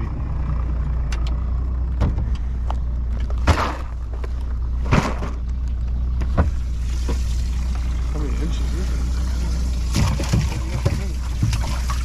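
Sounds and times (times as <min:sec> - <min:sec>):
boat motor idling: 0:00.0 - 0:12.0
knocks on boat: 0:09.9 - 0:11.9.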